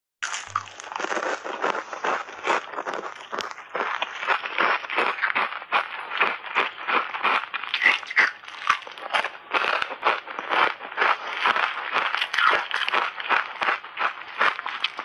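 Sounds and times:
ice chips crunching while chewed: 0.2 - 15.0.

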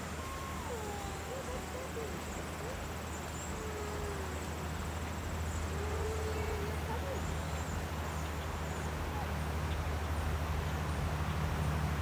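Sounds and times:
faint drawn-out low calls: 0.0 - 12.0.

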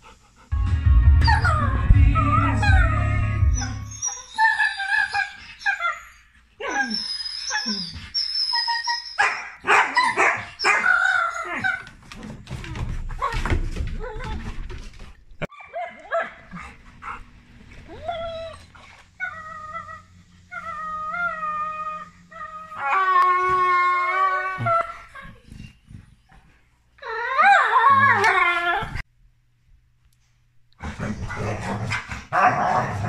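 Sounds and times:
dogs whining and yipping: 1.2 - 12.0, 15.5 - 26.3.

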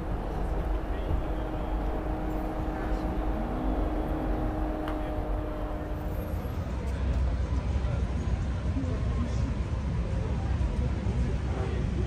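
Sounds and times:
held engine-like tone: 0.0 - 7.0
traffic hum: 0.0 - 8.6
murmur of voices: 0.0 - 12.0.

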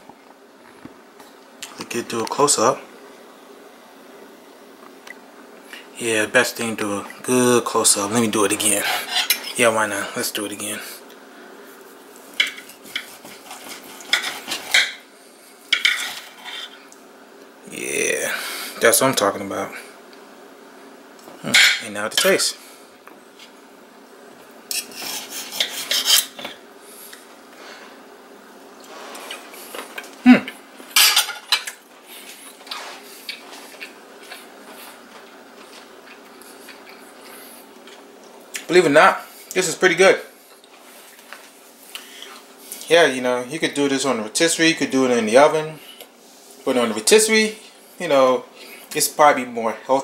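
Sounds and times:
knife and fork scraping a plate: 8.6 - 9.6, 12.4 - 15.0, 15.7 - 16.8, 24.7 - 26.6.

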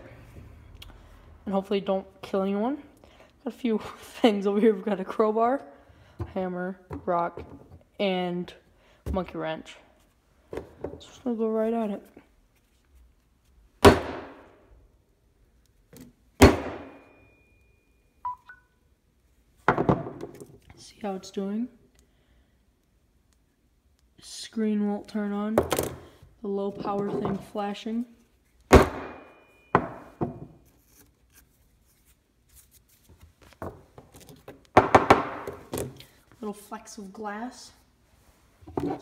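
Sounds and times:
electronic beeps: 18.2 - 18.8.

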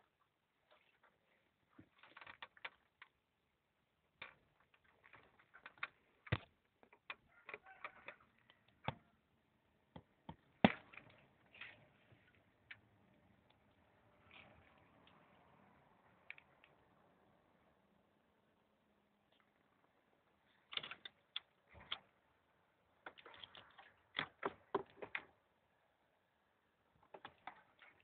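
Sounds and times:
plastic parts clicking and rustling: 0.7 - 3.2, 4.1 - 9.0, 20.5 - 22.2, 23.0 - 25.4, 27.0 - 28.0.

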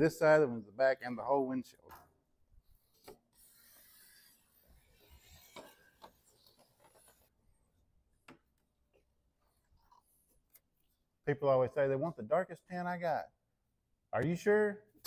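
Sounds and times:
film rubbing and scraping on glass: 2.8 - 7.4.

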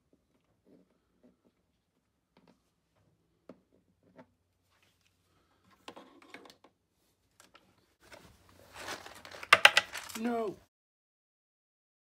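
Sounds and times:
hard plastic clicks and knocks: 9.5 - 10.1.

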